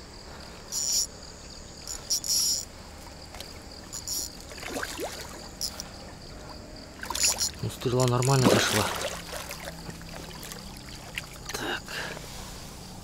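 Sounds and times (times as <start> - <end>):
insects chirping: 0.0 - 13.0.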